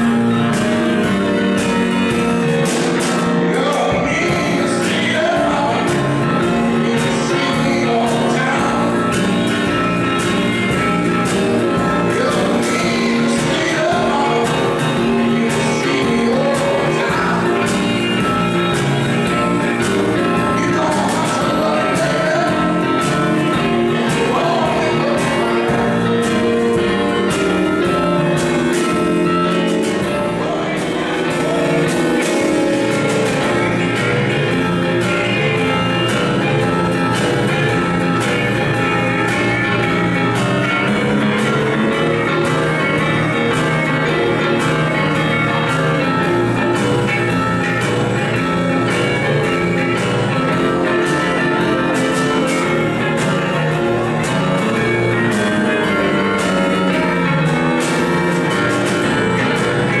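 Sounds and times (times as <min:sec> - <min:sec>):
drum kit: 0:00.0 - 1:00.0
electric guitar: 0:00.0 - 1:00.0
electric keyboard: 0:00.0 - 1:00.0.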